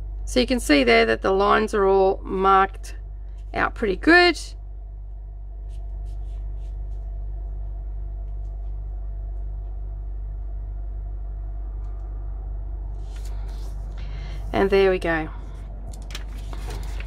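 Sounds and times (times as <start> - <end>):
steady low hum: 0.0 - 17.0
paper rustling: 13.0 - 14.5, 15.9 - 17.0.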